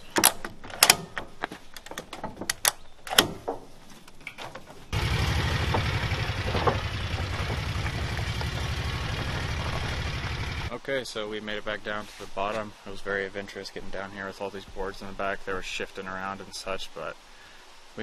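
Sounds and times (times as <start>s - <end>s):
vehicle engine running: 4.9s - 10.7s
sharp clicks and knocks: 5.6s - 9.8s.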